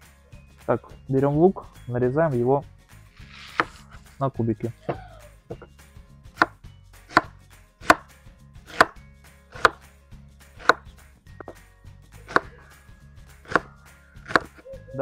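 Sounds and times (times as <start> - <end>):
knife chopping on wooden board: 3.4 - 4.0, 6.3 - 9.9, 10.6 - 11.6, 12.2 - 12.5, 13.4 - 14.6.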